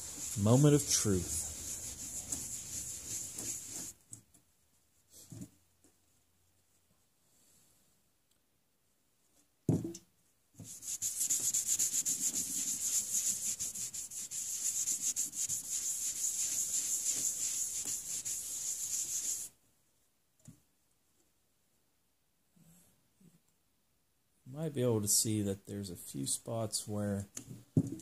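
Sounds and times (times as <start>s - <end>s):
cloth scrubbing metal plate: 0.0s - 3.9s, 10.7s - 19.5s
thump: 9.7s - 10.0s.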